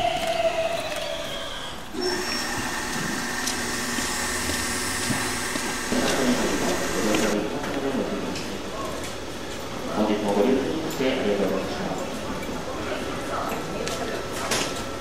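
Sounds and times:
stopping train whine: 2.0s - 7.4s.

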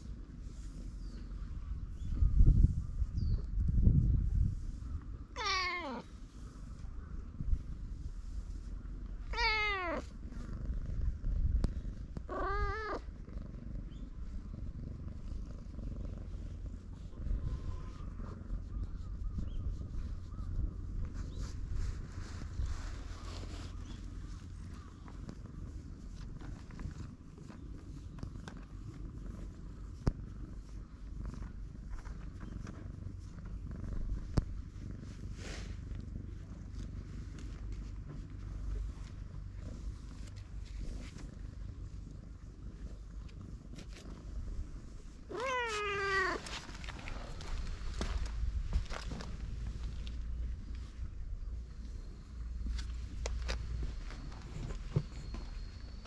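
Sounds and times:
cat purring: 0.0s - 56.0s
cat meowing: 5.4s - 6.1s, 9.3s - 10.0s, 12.3s - 13.0s, 45.3s - 46.4s.

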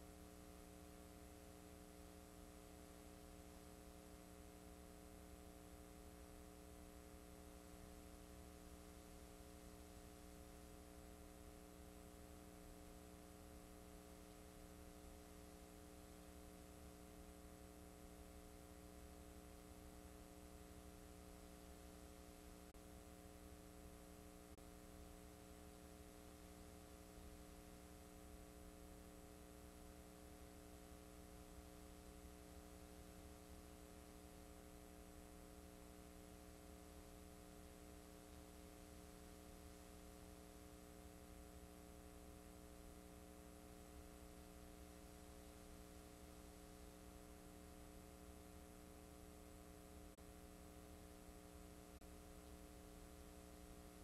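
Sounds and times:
faint mains hum: 0.0s - 54.0s
tape hiss: 0.0s - 54.0s.

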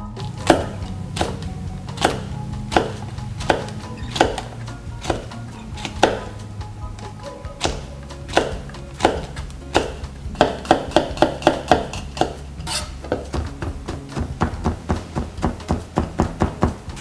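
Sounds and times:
knife tapping on cutting board: 0.4s - 6.3s, 7.6s - 12.4s.

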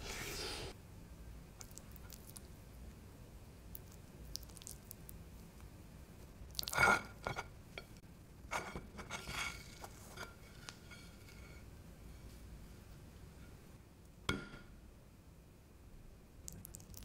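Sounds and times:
crispy food crackling and crunching: 1.6s - 2.6s, 3.6s - 5.7s, 6.4s - 7.0s, 16.4s - 17.0s.

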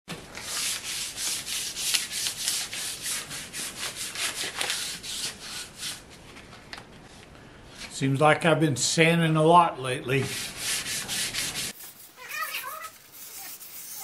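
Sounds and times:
sandpaper rubbing on panel: 0.4s - 6.0s, 10.2s - 14.0s.

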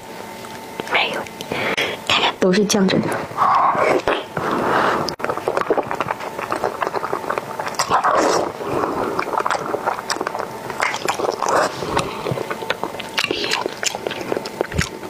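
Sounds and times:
chewing: 0.2s - 1.6s, 3.7s - 15.0s
wet slurping and smacking: 3.8s - 15.0s.

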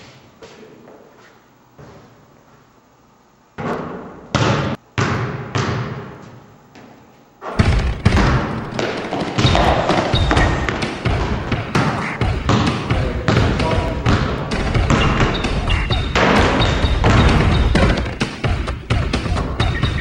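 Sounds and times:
basketball bouncing on hard floor: 3.6s - 6.1s, 7.6s - 19.7s.

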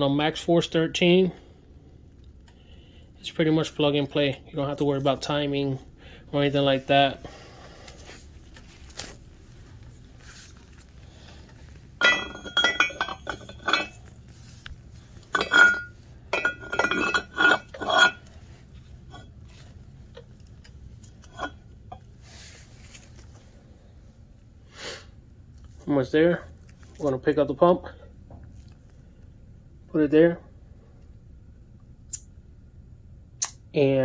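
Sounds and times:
metal parts clinking: 12.0s - 14.1s, 15.2s - 18.4s.

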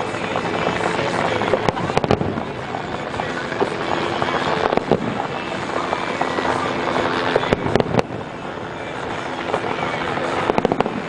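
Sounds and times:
distant fireworks crackling: 0.0s - 11.0s
sharp firework bangs: 3.4s - 5.2s, 9.0s - 11.0s.

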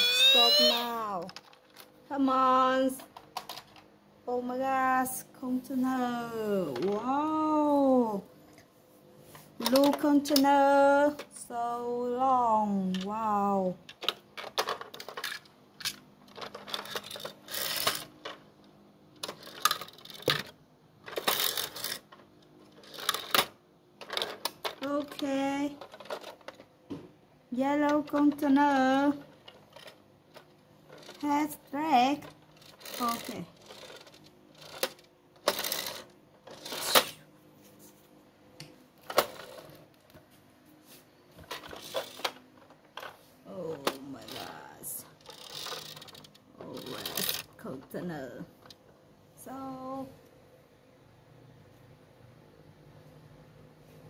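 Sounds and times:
toy trucks clicking and clacking: 13.9s - 18.4s, 19.2s - 26.6s, 27.9s - 37.2s, 41.5s - 43.2s, 43.8s - 47.5s.

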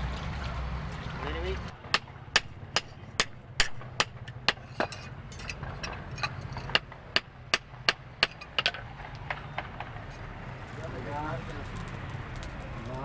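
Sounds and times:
hammer striking steel on anvil: 1.9s - 8.8s.

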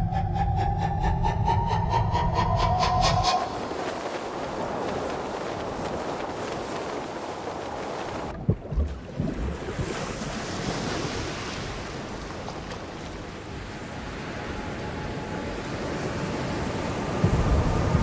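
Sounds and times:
ocean surf rushing: 0.0s - 8.3s
wind: 0.0s - 18.0s.

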